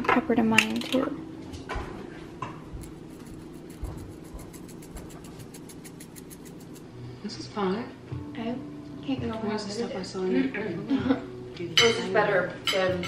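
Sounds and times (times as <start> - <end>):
low steady hum: 0.0 - 11.7
pepper flakes rattling in shaker: 2.8 - 6.9.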